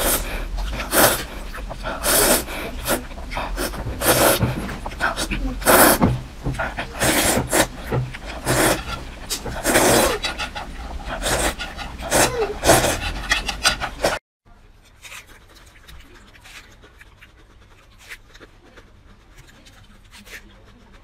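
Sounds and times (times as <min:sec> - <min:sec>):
loud slurping of noodles: 0:00.0 - 0:14.2
quiet chewing with wet mouth clicks: 0:14.8 - 0:21.0.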